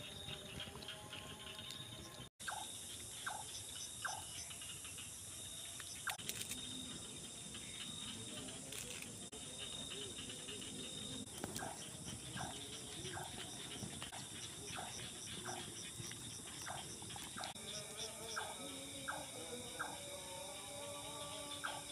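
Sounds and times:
night insects trilling: 0:00.0 - 0:21.9
faint wavering call: 0:17.4 - 0:21.9.

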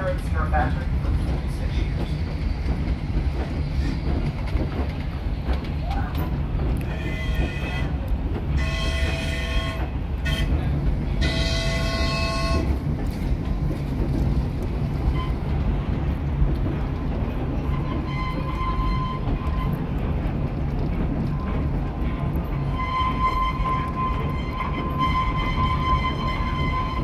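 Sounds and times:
coaches rumbling on track: 0:00.0 - 0:27.0
steam locomotive whistle blasts: 0:11.2 - 0:12.7.

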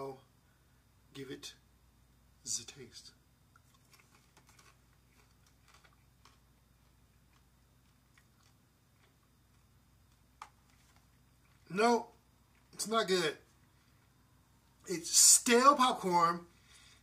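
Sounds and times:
chewing popcorn: 0:03.5 - 0:12.8.

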